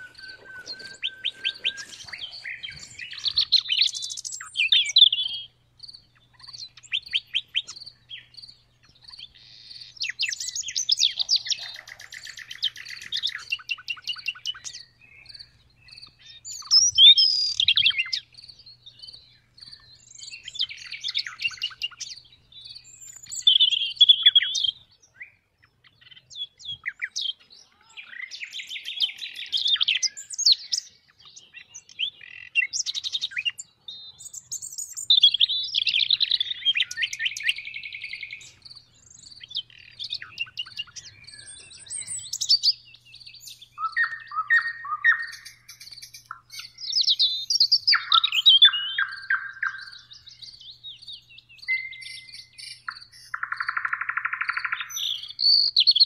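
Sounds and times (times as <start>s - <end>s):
nightingale singing: 0.0s - 56.0s.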